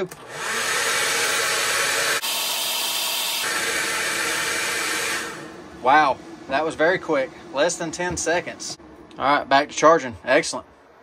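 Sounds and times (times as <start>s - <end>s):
hot-air blower hissing: 0.0s - 8.8s.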